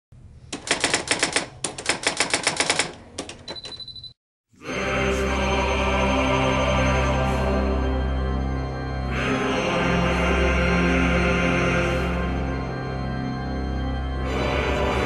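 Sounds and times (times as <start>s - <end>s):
typewriter key clacks: 0.5s - 3.8s
typewriter bell ding: 3.5s - 4.2s
droning music low tones: 4.6s - 15.0s.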